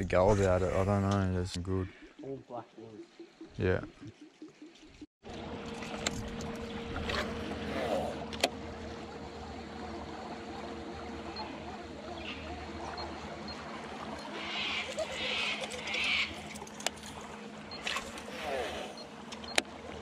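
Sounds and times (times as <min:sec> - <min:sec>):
electric motor humming: 0:05.3 - 0:20.0.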